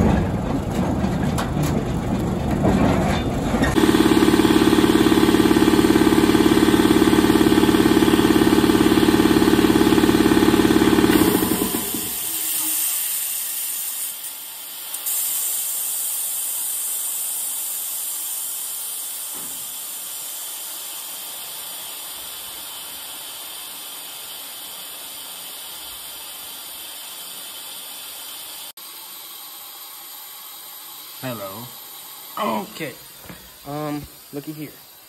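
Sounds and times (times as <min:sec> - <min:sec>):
compressed air hissing: 0:11.0 - 0:28.7.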